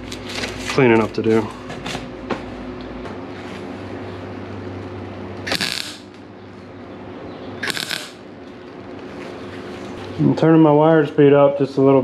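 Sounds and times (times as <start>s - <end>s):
steady background hum: 0.0s - 12.0s
welder arc crackling: 5.4s - 6.2s, 7.6s - 8.3s.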